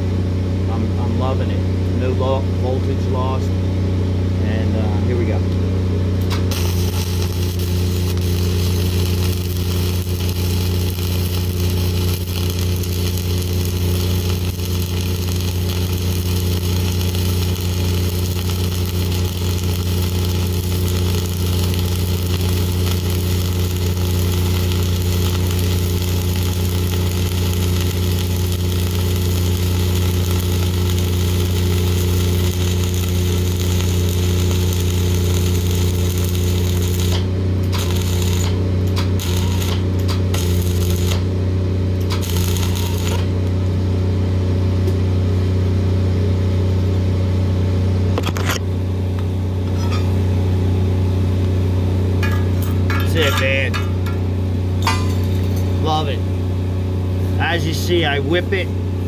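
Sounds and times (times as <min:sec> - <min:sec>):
constant low hum: 0:00.0 - 0:59.0
welding arc crackling and sizzling: 0:06.2 - 0:44.2, 0:51.2 - 0:56.2.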